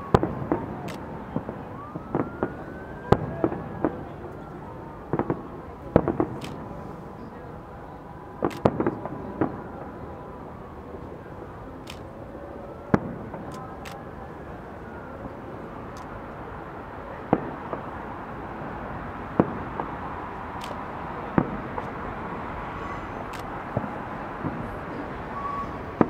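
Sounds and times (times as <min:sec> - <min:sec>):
smaller firework cracks: 0:19.2 - 0:20.0.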